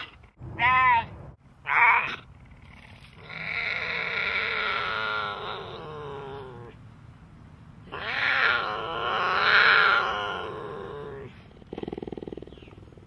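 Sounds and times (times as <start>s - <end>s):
cougar yowling: 7.9s - 11.4s.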